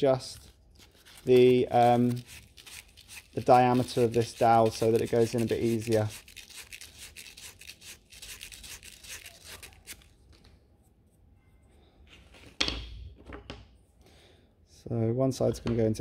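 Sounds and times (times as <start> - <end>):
sandpaper rubbing wooden dowel: 0.8 - 10.1.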